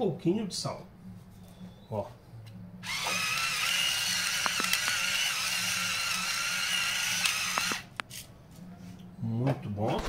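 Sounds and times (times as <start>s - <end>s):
small electric motor whirring: 2.8s - 7.9s.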